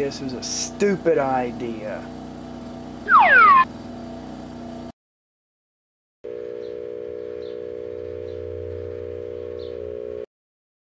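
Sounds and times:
microwave oven humming: 6.3 - 10.3.

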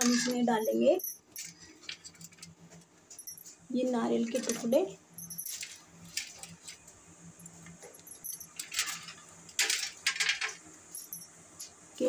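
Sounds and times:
metal spoon scraping a pan: 0.0 - 0.8.

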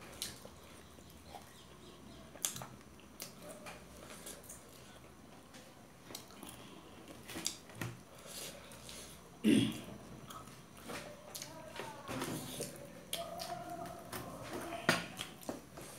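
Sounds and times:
chewing crisp food: 0.0 - 5.3, 6.0 - 9.2, 10.2 - 11.6.

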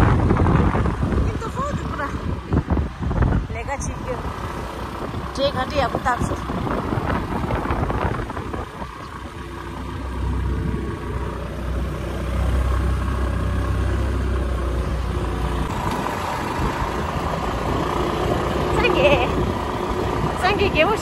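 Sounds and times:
wind rumbling on microphone: 0.0 - 21.0
small motorbike engine running: 14.8 - 21.0.

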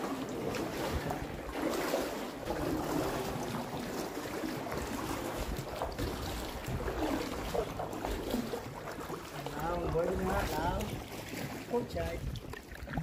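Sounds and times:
water sloshing around canoe: 0.0 - 13.0
wind rumbling on microphone: 0.7 - 1.6, 4.6 - 8.8, 9.5 - 13.0.

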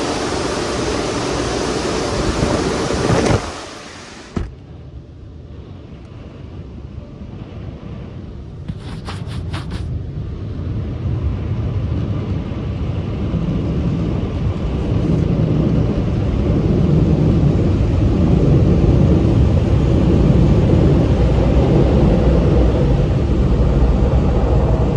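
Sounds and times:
car wash blowers roaring: 0.0 - 4.5, 8.7 - 9.9, 11.8 - 24.9.

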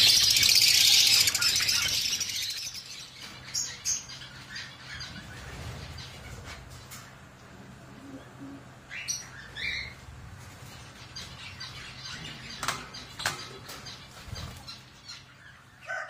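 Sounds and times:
lovebirds chirping: 0.0 - 7.3.

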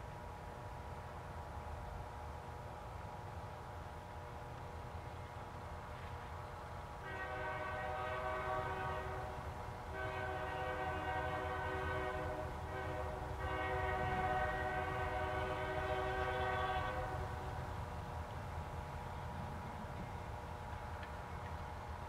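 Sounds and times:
locomotive air horn blasts: 7.0 - 17.4.

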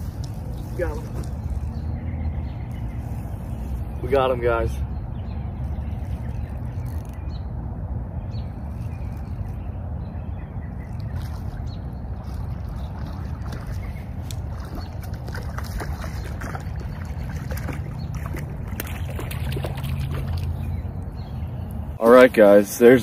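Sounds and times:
fish splashing at water surface: 10.9 - 20.6.

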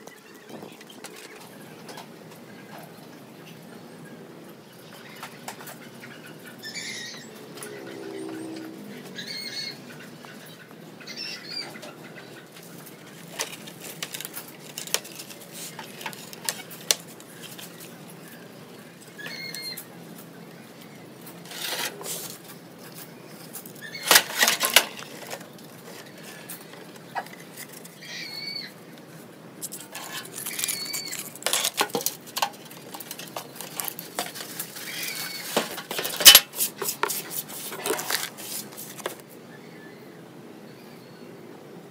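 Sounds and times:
metal computer case clattering: 24.1 - 25.4.

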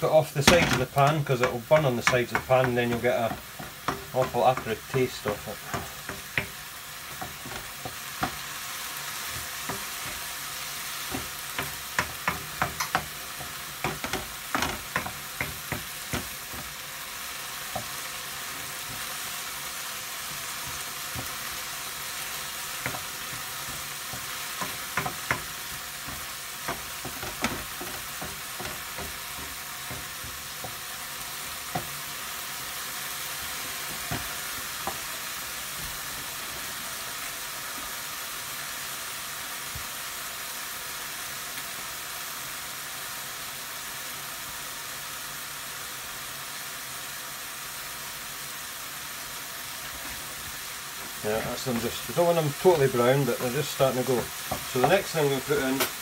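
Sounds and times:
onions sizzling in a frying pan: 0.0 - 56.0
wooden spoon scraping a pan: 0.2 - 16.9, 17.7 - 32.3, 49.8 - 56.0.

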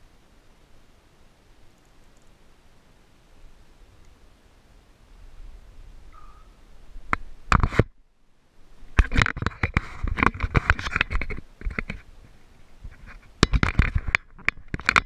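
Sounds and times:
clothing rubbing against camera: 9.0 - 14.1.

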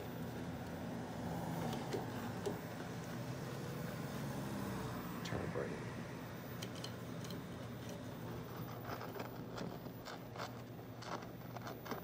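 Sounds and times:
television low hum: 0.0 - 12.0
short scratchy crackles: 7.6 - 12.0.

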